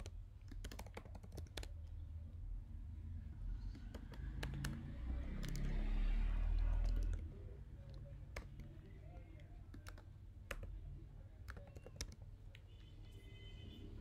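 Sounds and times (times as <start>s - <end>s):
typing on computer keyboard: 0.0s - 1.9s, 3.6s - 4.8s, 5.4s - 5.7s, 6.6s - 7.2s, 7.9s - 10.8s, 11.4s - 12.6s.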